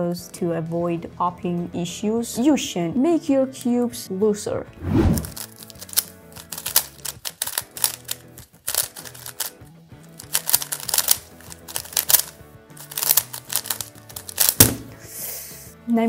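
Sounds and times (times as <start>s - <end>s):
background music: 0.0s - 16.0s
speed cube clicking: 5.2s - 9.5s, 10.2s - 14.6s.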